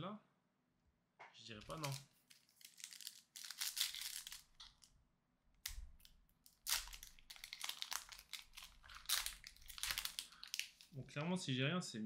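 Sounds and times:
foil wrapper crinkling and tearing: 0:01.6 - 0:04.9, 0:05.6 - 0:11.0.

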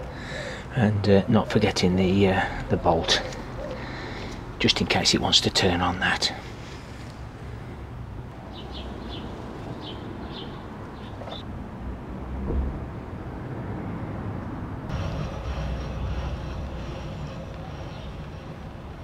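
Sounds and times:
low outdoor rumble: 0:11.4 - 0:19.0
thump: 0:12.4 - 0:12.9.

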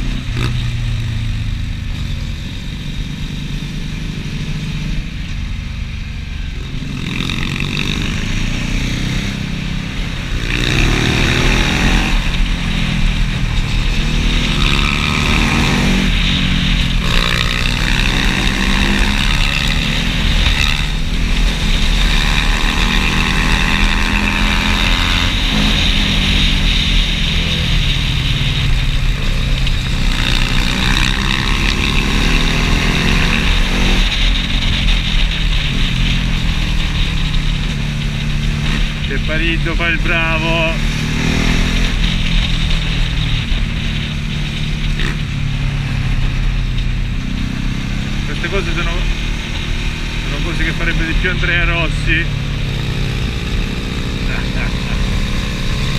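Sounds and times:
motorcycle engine accelerating: 0:00.0 - 0:55.9.

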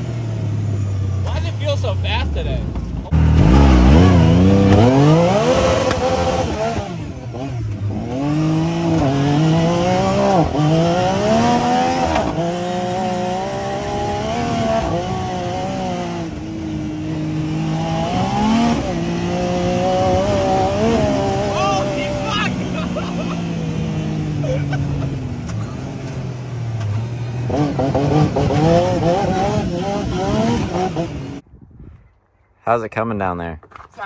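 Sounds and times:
engine accelerating through gears: 0:02.6 - 0:31.4.

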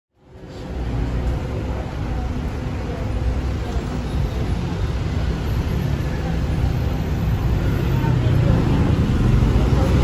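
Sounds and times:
city street traffic rumble: 0:00.1 - 0:10.0.

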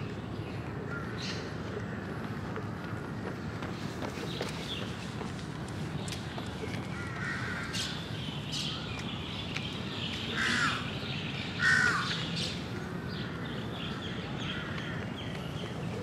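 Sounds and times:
crow cawing: 0:11.6 - 0:12.1.

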